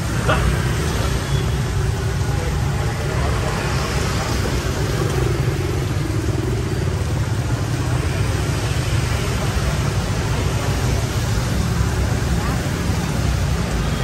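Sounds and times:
car engines passing: 0.0 - 14.0
motorbike engines passing: 0.0 - 14.0.

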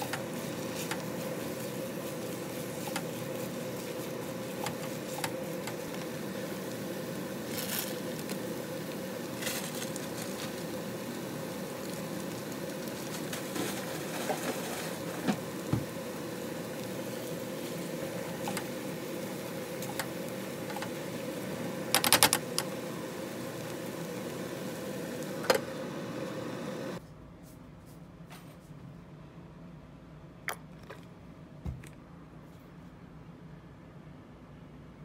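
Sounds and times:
rice sizzling in a pan: 0.0 - 27.0
steady hum: 0.0 - 35.0
spatula scraping a pan: 13.4 - 15.3.

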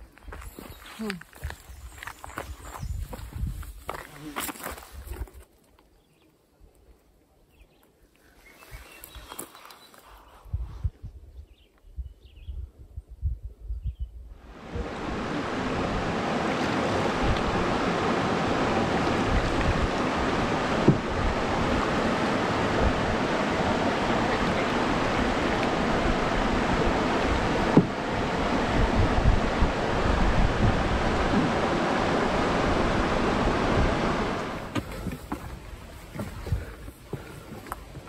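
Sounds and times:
water rushing over rocks: 14.4 - 38.0.

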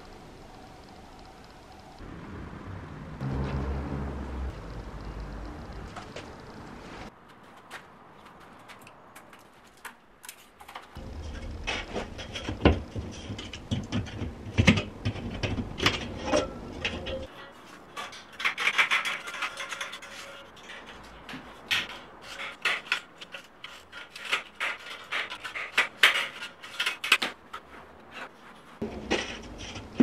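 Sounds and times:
low hum: 0.0 - 7.1, 11.0 - 17.3
sheet metal clicking and clanking: 8.7 - 27.4.

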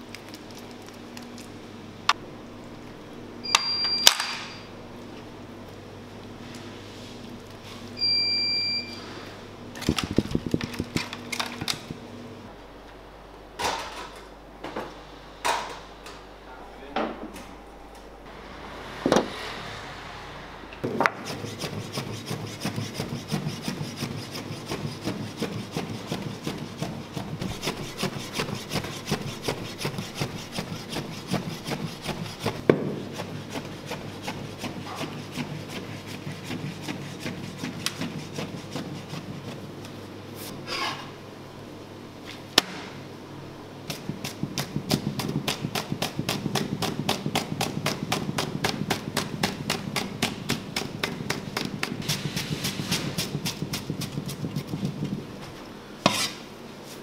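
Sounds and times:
knife chopping meat on wood: 43.9 - 55.2.

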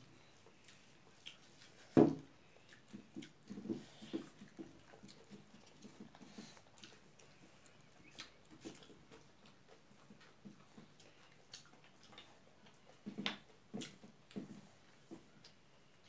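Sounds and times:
lip smacks: 2.6 - 14.0
chewing clicks: 4.7 - 14.0.

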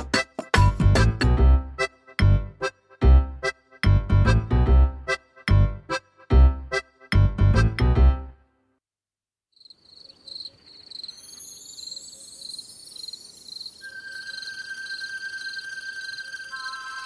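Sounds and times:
crickets chirping: 9.5 - 17.0.

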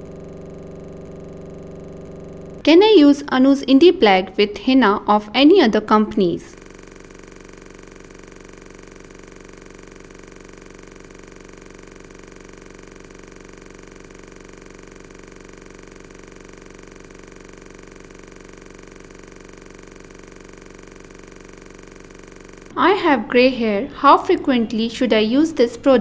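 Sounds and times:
steady multi-tone hum: 0.0 - 26.0.

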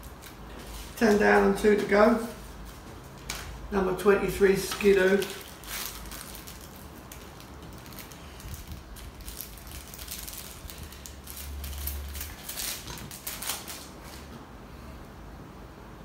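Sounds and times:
paper envelope crinkling: 4.6 - 14.3.

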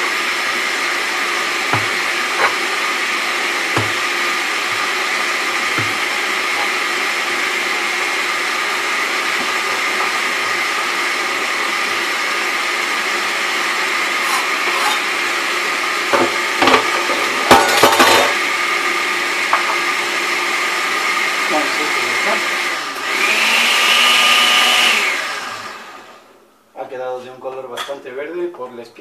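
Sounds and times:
knife scraping food into metal bowl: 1.7 - 2.8, 14.2 - 15.1.

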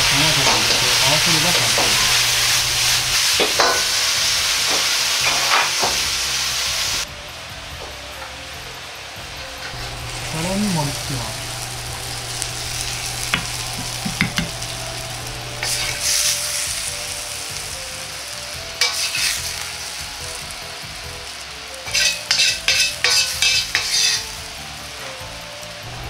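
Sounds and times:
steady hiss with low hum: 0.0 - 3.4, 8.6 - 22.6
metal ladle scraping wok: 0.4 - 4.2, 9.6 - 16.4, 18.8 - 19.6, 21.9 - 24.3.

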